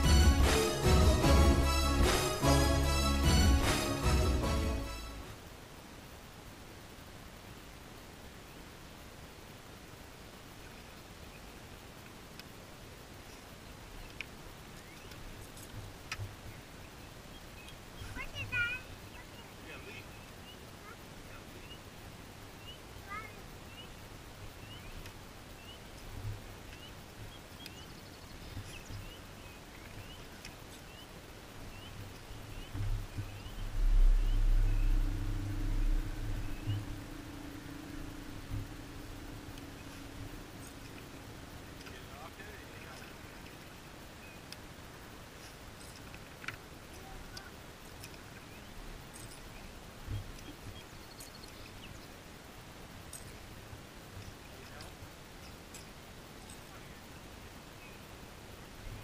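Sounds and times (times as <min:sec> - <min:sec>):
low steady rumble: 0:00.0 - 0:08.3, 0:30.9 - 0:45.5
faint low outdoor rumble: 0:00.0 - 0:59.0
faint ticks and clicks: 0:10.5 - 0:12.6, 0:13.2 - 0:19.2, 0:22.0 - 0:57.6
small bird chirping: 0:22.5 - 0:44.5, 0:47.0 - 0:52.2.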